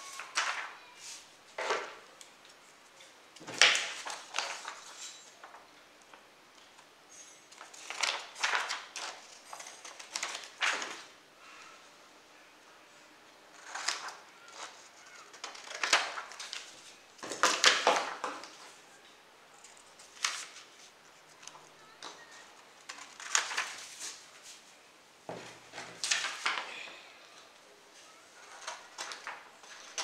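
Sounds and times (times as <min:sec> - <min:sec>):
paper rustling on wooden table: 0:00.0 - 0:02.0, 0:03.4 - 0:05.6, 0:07.5 - 0:11.1, 0:22.4 - 0:24.6, 0:25.3 - 0:26.7, 0:28.4 - 0:30.0.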